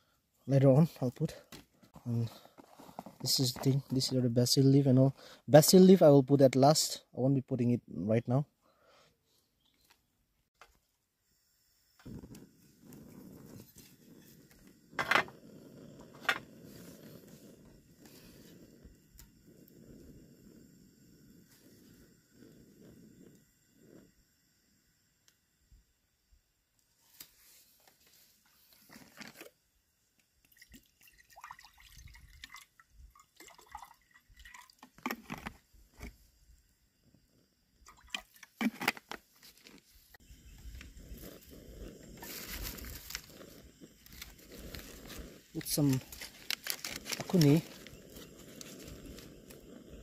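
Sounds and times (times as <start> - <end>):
gas flame rushing: 11.9 - 24.8, 40.2 - 50.0
water pouring into a pot: 30.4 - 35.0, 37.8 - 38.6.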